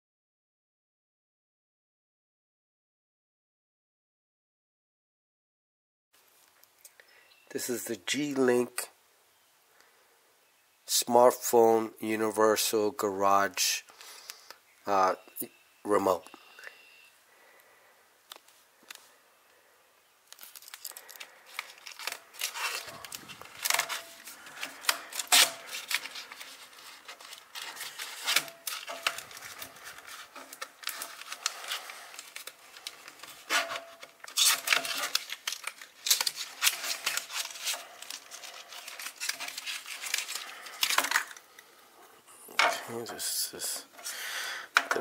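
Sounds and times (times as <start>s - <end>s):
paper tearing and crinkling: 20.3s - 41.6s.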